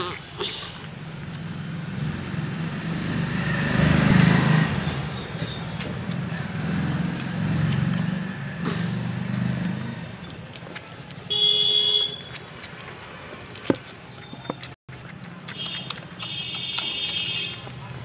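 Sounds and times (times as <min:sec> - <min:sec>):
vehicle engine rumble: 0:00.2 - 0:14.8.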